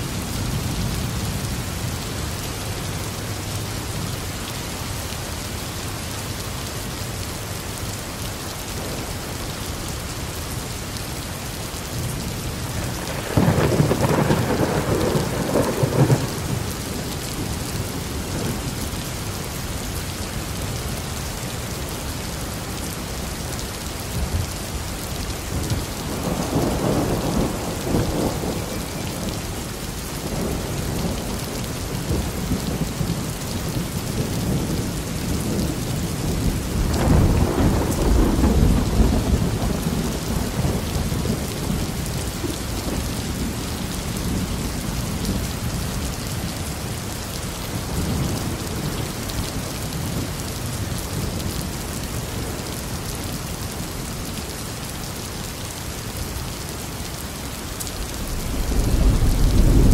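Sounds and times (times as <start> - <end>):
steady rain falling: 0.0 - 59.9
thunder rumbling: 12.8 - 18.6, 25.5 - 42.2, 57.9 - 59.9.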